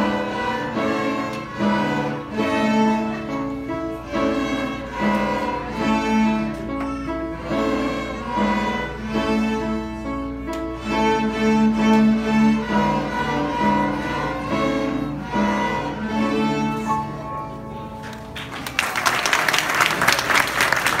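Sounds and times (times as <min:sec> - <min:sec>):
violins playing held notes: 0:00.0 - 0:18.2
audience applause: 0:18.0 - 0:21.0.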